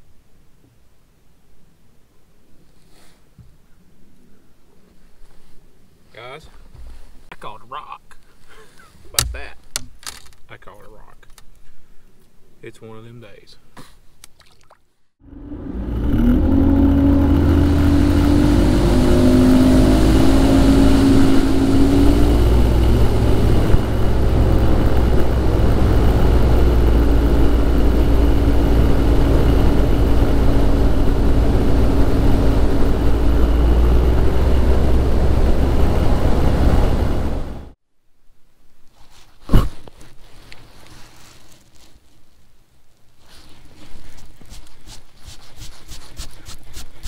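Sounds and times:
outboard motor running: 0:15.5 - 0:37.7.

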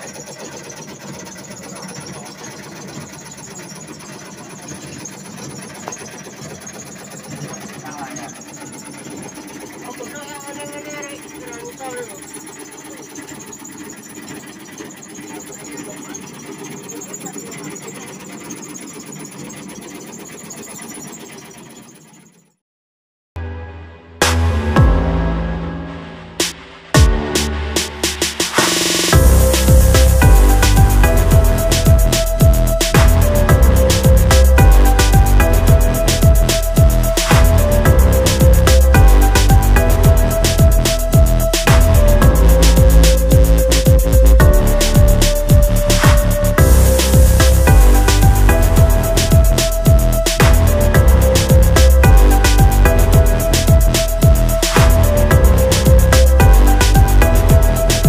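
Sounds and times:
shredding machine rattling: 0:00.0 - 0:22.4
electronic dance music: 0:23.4 - 0:58.0.

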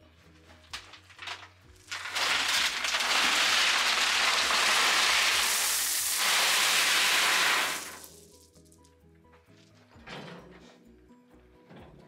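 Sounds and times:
gravel pouring from wheelbarrow: 0:00.8 - 0:08.5.

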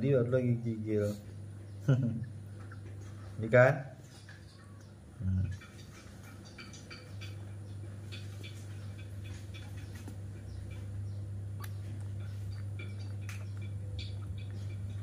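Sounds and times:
low hum: 0:04.1 - 0:15.0.

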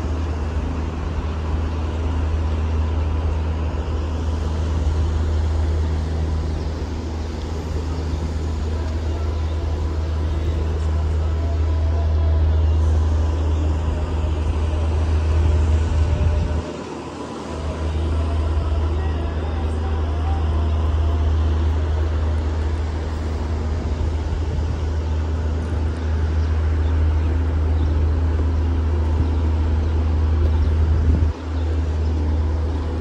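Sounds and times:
low rumble of city ambience: 0:00.0 - 0:33.0.

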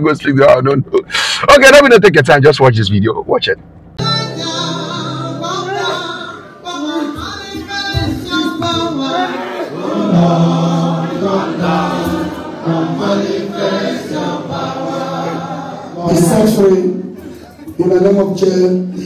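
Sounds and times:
choir singing: 0:04.0 - 0:16.5.

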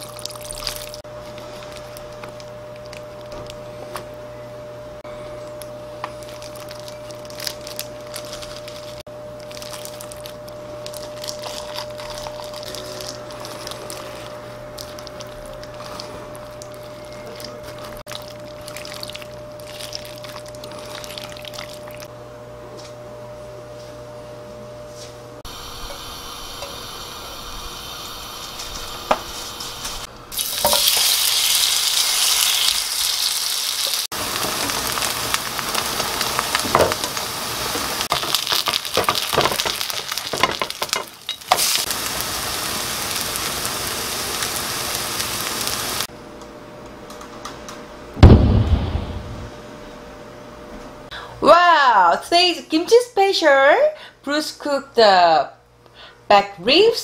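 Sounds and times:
batter sizzling in oil: 0:06.1 - 0:22.1, 0:25.5 - 0:46.1.

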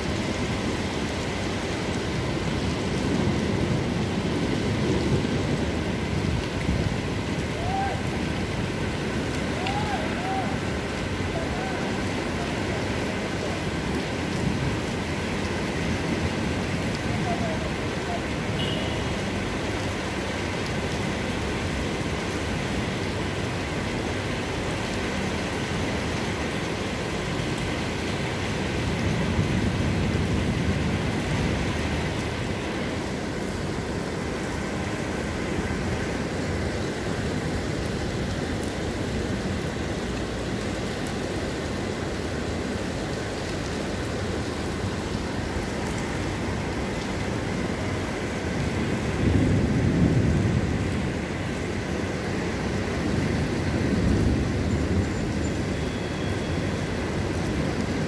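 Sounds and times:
heavy rain falling: 0:00.0 - 0:58.0
thunder rumbling: 0:02.1 - 0:18.5, 0:28.7 - 0:39.4, 0:47.4 - 0:58.0.

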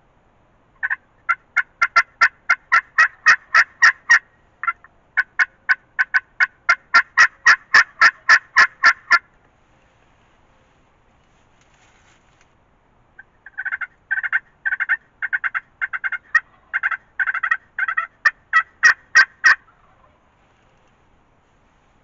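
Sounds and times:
turkey yelps: 0:00.8 - 0:09.3, 0:13.2 - 0:20.2.

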